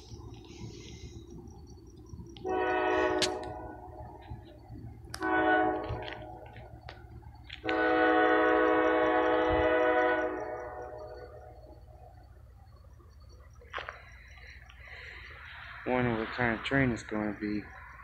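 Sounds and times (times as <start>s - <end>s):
locomotive air horn blasts: 2.4s - 3.8s, 5.1s - 6.4s, 7.6s - 11.4s.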